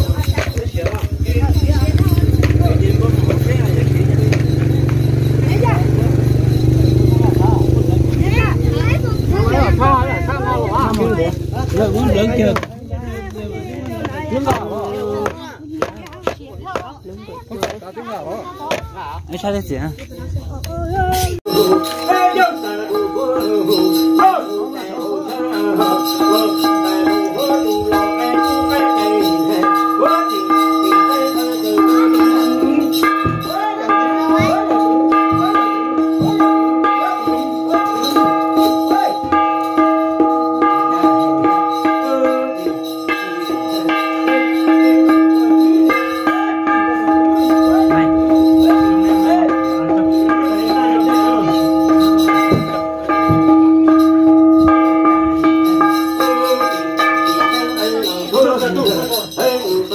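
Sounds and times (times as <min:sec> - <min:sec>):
bell rattles jingling: 0:00.0 - 0:59.9
gong beaten in fast rhythm: 0:00.1 - 0:12.9, 0:25.4 - 0:58.7
person chanting: 0:21.5 - 0:40.0, 0:40.6 - 0:59.9.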